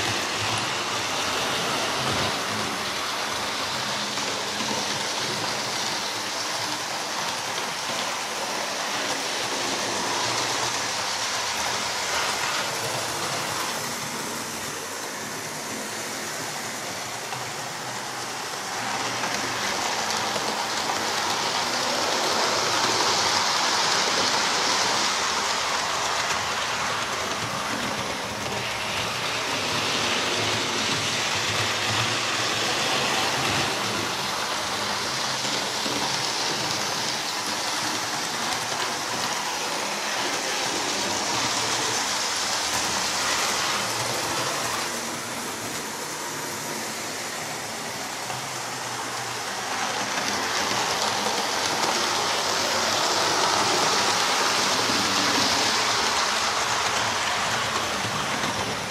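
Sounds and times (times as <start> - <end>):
model train rumbling on rails: 0.0 - 58.9.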